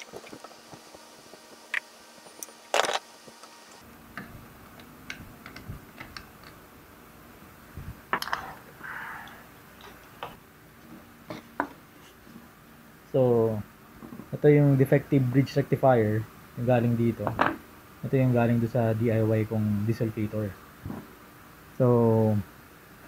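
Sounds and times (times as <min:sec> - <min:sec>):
nut driver and metal parts clicking: 0:04.2 - 0:06.6.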